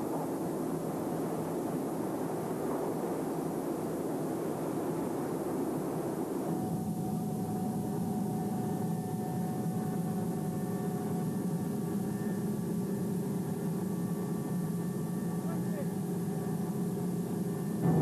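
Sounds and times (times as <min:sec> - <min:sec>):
low mechanical drone: 0:16.7 - 0:18.0.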